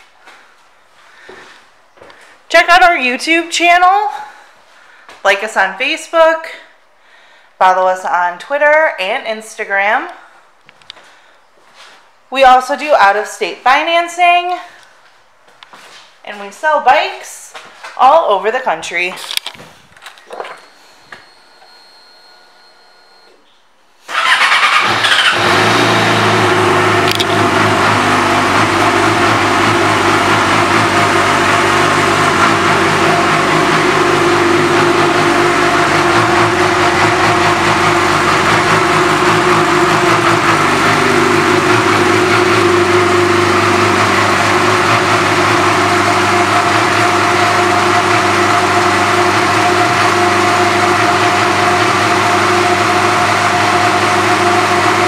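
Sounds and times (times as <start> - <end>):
motorcycle engine idling: 24.1 - 50.8.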